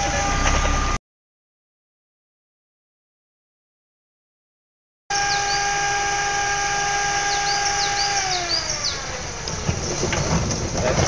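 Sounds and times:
car engine whine: 0.0s - 1.0s, 5.1s - 11.0s
birds chirping: 5.1s - 11.0s.

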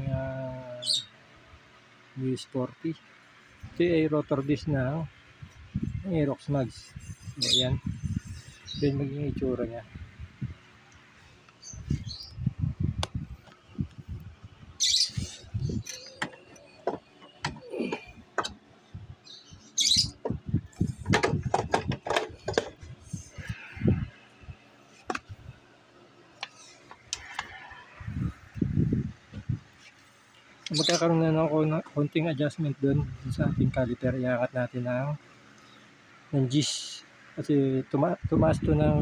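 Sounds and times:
birds chirping: 0.2s - 1.2s, 2.2s - 34.0s, 35.4s - 37.2s
knocks and clicks of wheel work: 15.8s - 18.6s, 20.2s - 22.8s.

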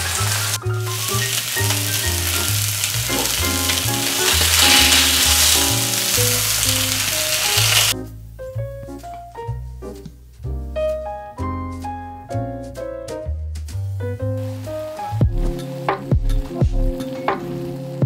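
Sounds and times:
fish sizzling in hot oil: 0.0s - 8.0s, 14.4s - 15.2s
background music with bass line: 0.0s - 18.0s.

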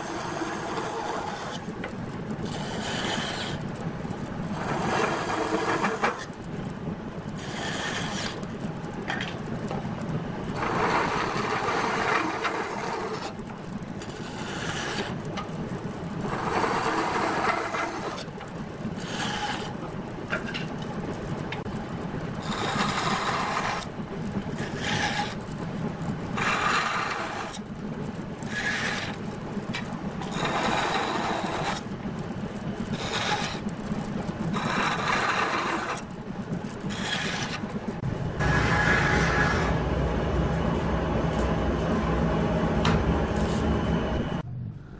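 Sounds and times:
saw blade rasping through wood: 36.9s - 37.6s
band saw humming: 36.9s - 44.4s.

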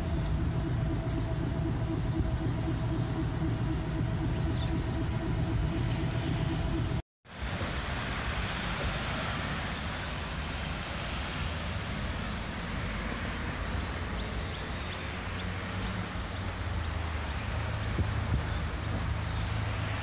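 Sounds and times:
bird chirping: 0.0s - 7.0s
low hum and hiss: 0.0s - 20.0s.

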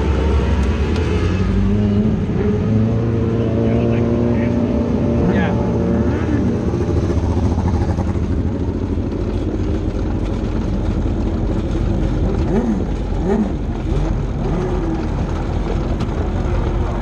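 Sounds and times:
motorcycle engine running slowly: 6.6s - 17.0s.

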